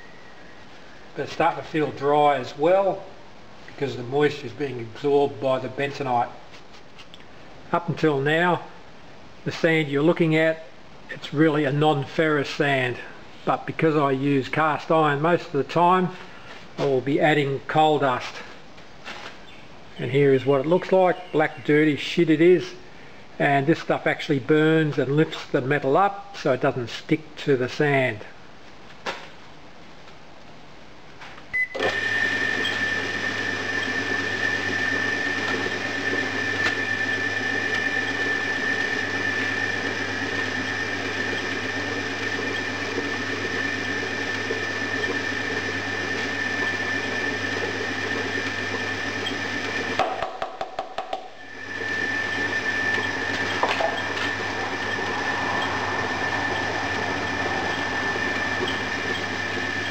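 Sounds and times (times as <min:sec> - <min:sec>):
sand mixer motor humming and whining: 0:31.8 - 0:50.3, 0:51.4 - 0:59.9.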